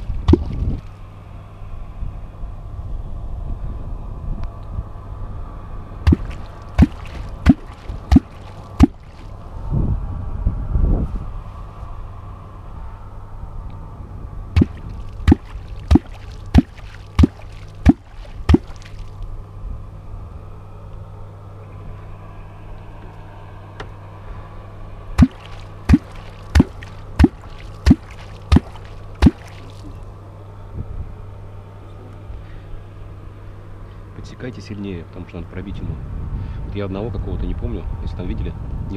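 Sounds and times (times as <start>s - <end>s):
deep clonk strokes in water: 0.0s - 0.9s, 6.0s - 9.4s, 14.6s - 19.2s, 25.2s - 30.0s.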